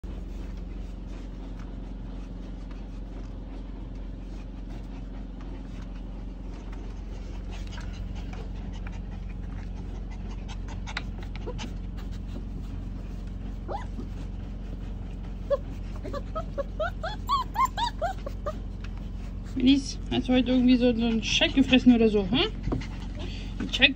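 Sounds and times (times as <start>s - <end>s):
paws scratching vacuum cleaner: 0.0s - 23.9s
puppies whimpering and yipping: 6.4s - 19.7s.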